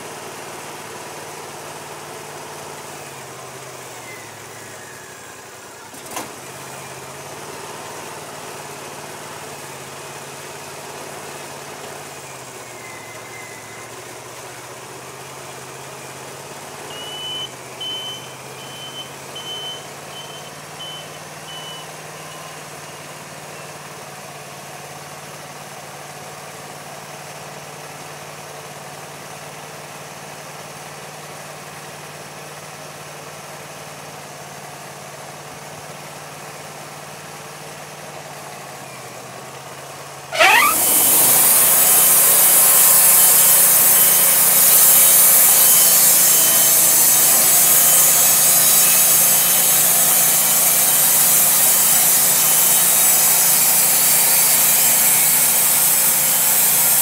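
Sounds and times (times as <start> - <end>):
sawmill engine idling: 0.0 - 57.0
band blade cutting wood: 40.3 - 57.0.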